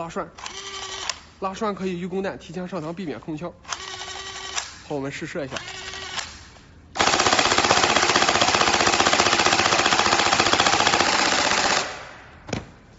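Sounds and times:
toy blaster firing full-auto: 7.0s - 12.0s.

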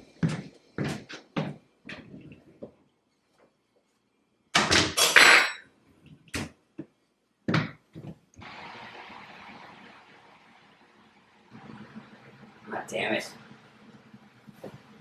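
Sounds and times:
light footsteps: 0.0s - 3.5s, 6.1s - 8.4s.

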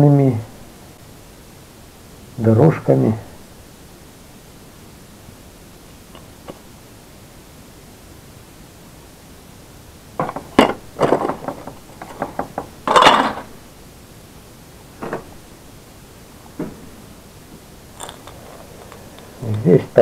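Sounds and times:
electronic parts clattering on workbench: 10.2s - 13.5s, 18.0s - 19.3s.

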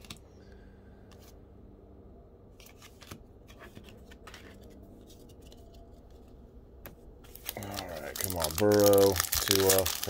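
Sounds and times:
trading cards sliding and scraping: 2.6s - 6.4s.

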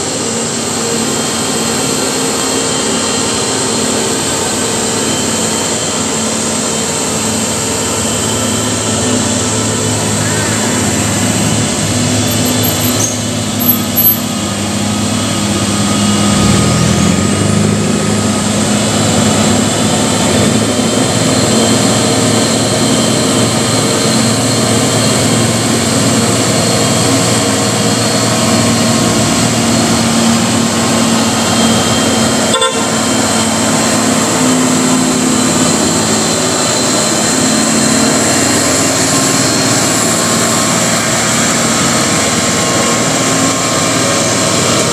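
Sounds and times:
diesel truck engines labouring: 0.0s - 44.9s
horn toots: 32.4s - 33.2s.

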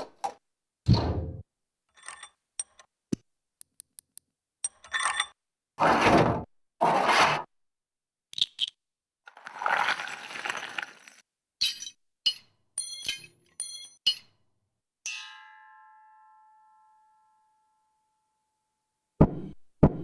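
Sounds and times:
sharp metallic clinks: 11.6s - 14.4s.

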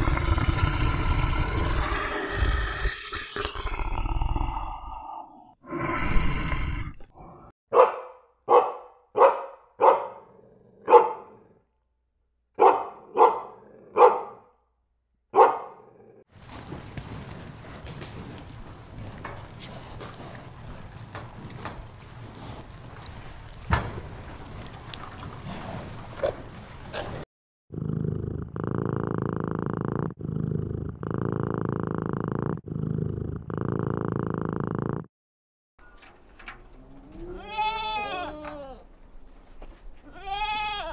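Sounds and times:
dog barking: 7.7s - 11.6s, 12.6s - 14.5s, 15.3s - 15.9s
cat purring: 27.7s - 35.1s.

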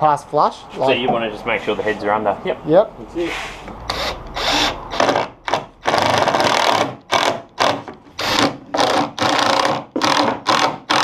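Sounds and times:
cordless drill driving screws: 3.8s - 11.0s.

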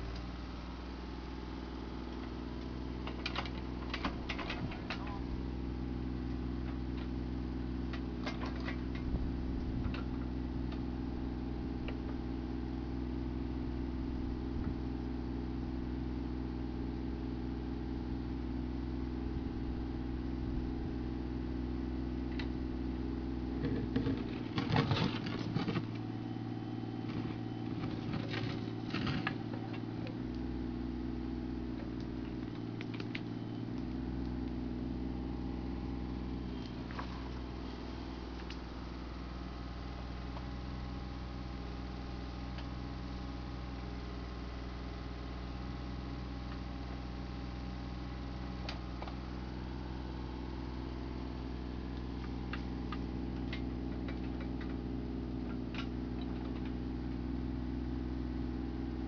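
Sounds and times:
diesel engine running: 0.0s - 59.0s
bucket knocking and scraping soil: 23.5s - 26.1s, 27.0s - 29.8s.

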